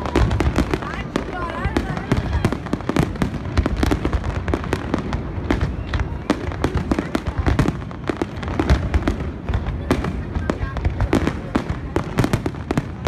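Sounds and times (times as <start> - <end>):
firework bangs and crackles: 0.0 - 13.0.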